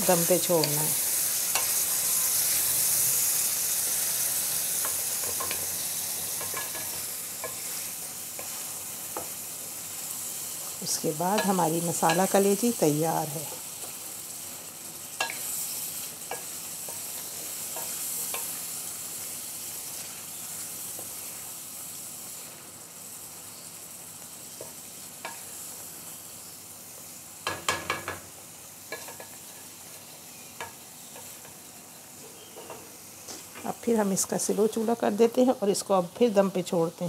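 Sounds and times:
food sizzling in a pan: 0.0 - 37.0
spatula tapping and scraping pan: 4.8 - 5.7, 6.3 - 7.7, 28.9 - 29.6.

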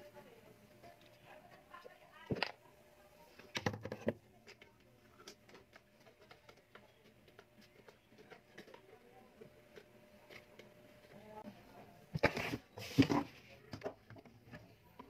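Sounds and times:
plastic parts clicking and tapping: 3.4 - 9.0.

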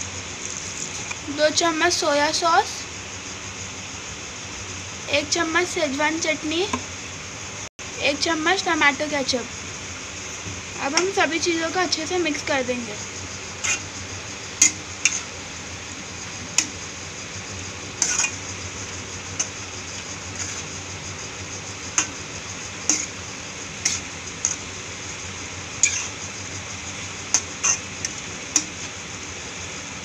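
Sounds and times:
pan sizzling: 8.3 - 30.0
metal spatula scraping pan: 13.6 - 13.9, 14.6 - 15.3, 18.0 - 18.4, 20.3 - 20.7, 22.9 - 23.2, 23.8 - 24.6, 25.8 - 26.2, 27.3 - 28.7.

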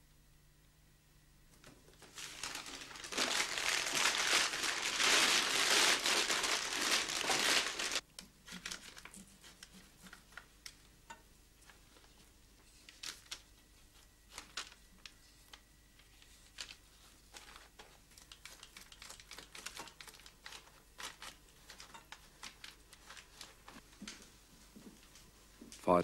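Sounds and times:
paper bag crinkling: 1.9 - 10.5, 12.8 - 15.2, 16.0 - 23.8.

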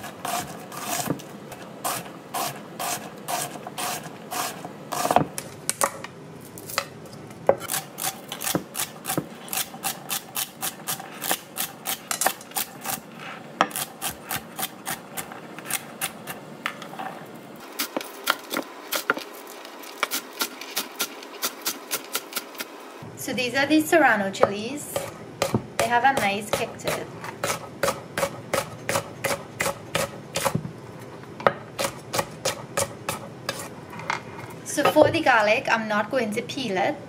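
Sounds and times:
knife chopping on wooden board: 0.2 - 1.2, 7.5 - 12.7, 25.0 - 30.6.

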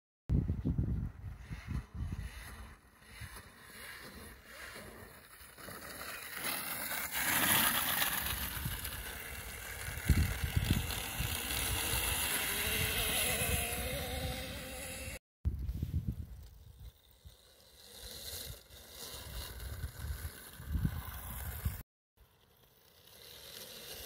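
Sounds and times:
tyres on dirt: 1.5 - 15.2
electric motor whine: 8.0 - 15.2.

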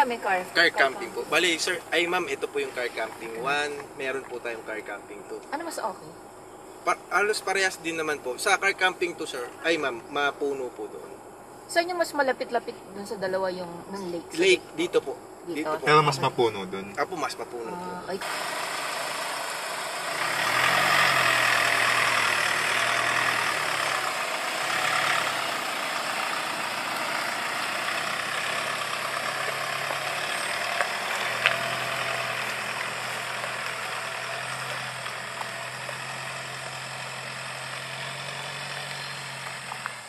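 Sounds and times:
truck engine driving past: 18.2 - 40.0.

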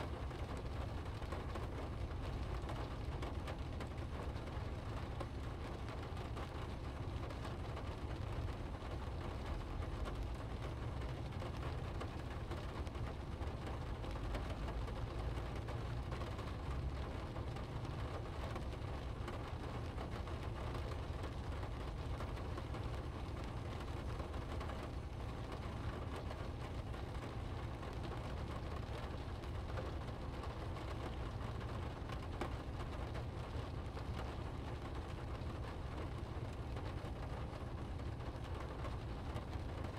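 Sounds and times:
rain hissing on windscreen: 0.0 - 39.9
road and engine rumble: 0.0 - 39.9
tyres on wet road: 0.0 - 39.9.

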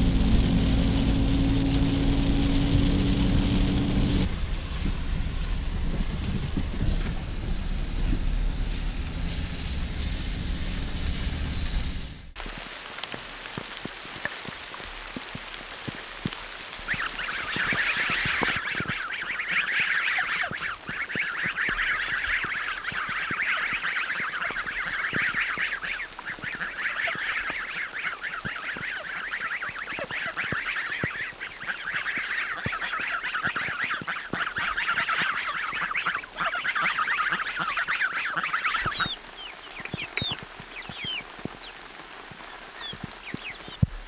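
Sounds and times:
chorus of birds calling: 16.8 - 41.8, 42.6 - 43.8.

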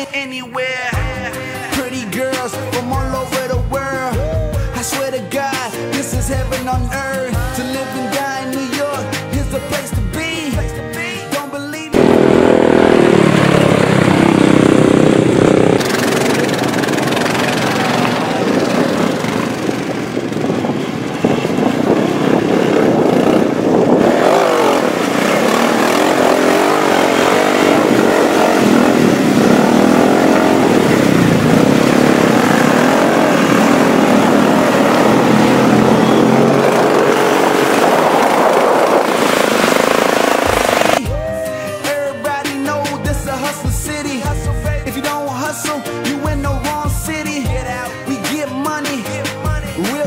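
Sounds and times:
atv engines revving: 11.9 - 41.0.

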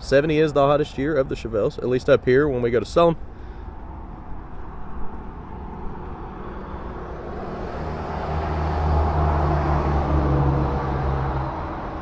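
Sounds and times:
low engine hum: 2.5 - 12.0
vehicle passing rushing noise: 3.6 - 12.0.

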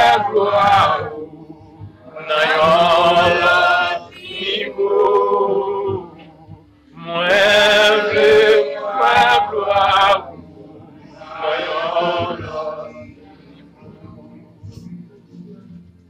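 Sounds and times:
devotional chant singing: 0.0 - 14.9.

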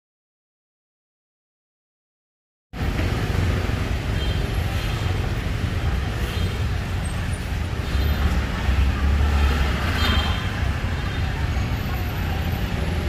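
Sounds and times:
loud background noise with low rumble: 2.8 - 13.0.

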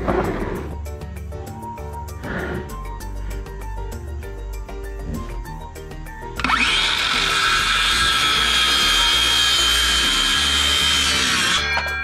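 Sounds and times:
background music: 0.0 - 12.0
circular saw cutting wood: 6.4 - 12.0.

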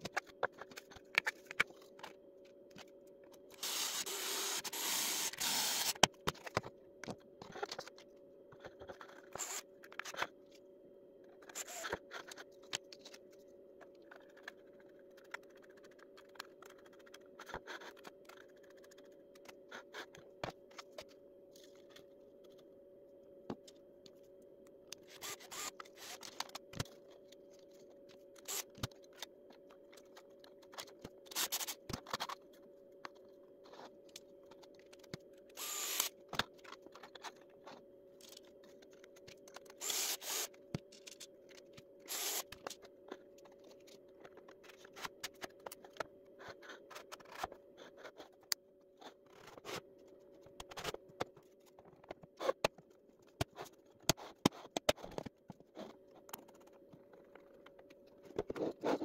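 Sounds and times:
steady hum: 0.0 - 59.0
plastic parts clicking and knocking: 50.4 - 59.0.

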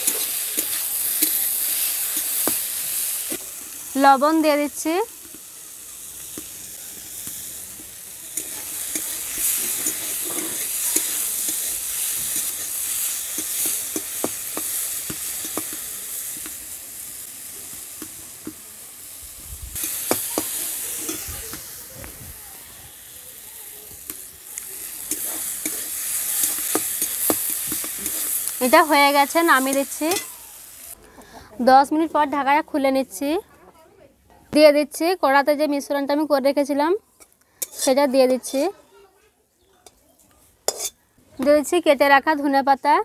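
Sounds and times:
vegetables sizzling in oil: 0.0 - 31.0, 34.6 - 38.8, 40.6 - 43.0
metal spatula scraping pan: 8.3 - 14.7, 37.6 - 38.8, 40.7 - 41.0.

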